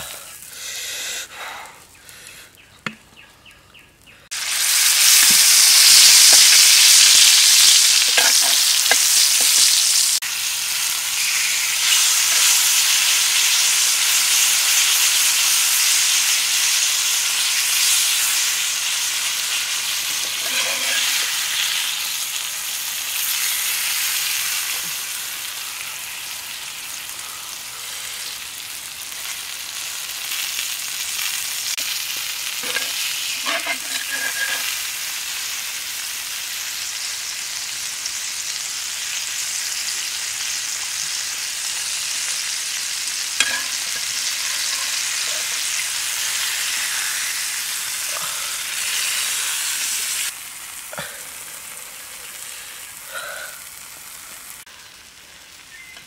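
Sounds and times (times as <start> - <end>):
hot oil sizzling in a pan: 4.3 - 56.0
knife blade stirring food in pan: 8.0 - 9.6, 20.2 - 21.2, 32.6 - 34.7.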